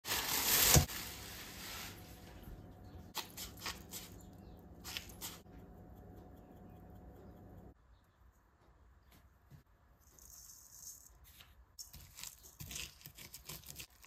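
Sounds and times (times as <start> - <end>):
plastic cling wrap crinkling: 0.0 - 2.3
pepper grinder scratching: 3.2 - 7.4, 11.8 - 14.0.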